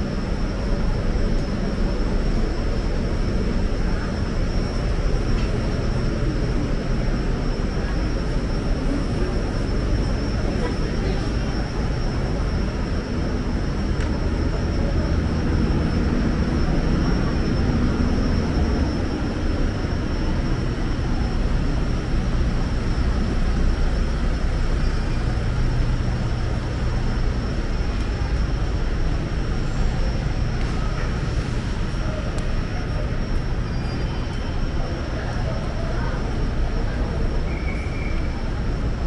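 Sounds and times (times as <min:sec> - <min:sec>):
low urban rumble: 0:00.0 - 0:39.0.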